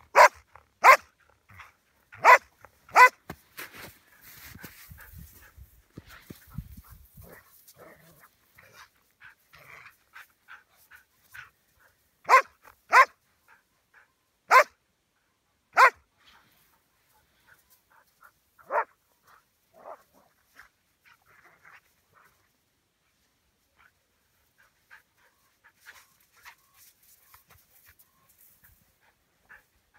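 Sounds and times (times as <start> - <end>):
dog barking: 0.1 - 3.2, 12.2 - 13.2, 14.5 - 14.8, 15.7 - 16.0, 18.6 - 19.0, 19.8 - 20.1.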